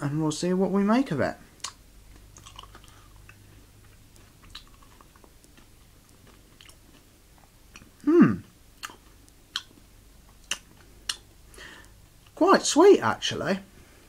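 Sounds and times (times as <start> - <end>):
person chewing crunchy candy: 1.6 - 12.4
vocal hum falling in pitch: 8.0 - 8.5.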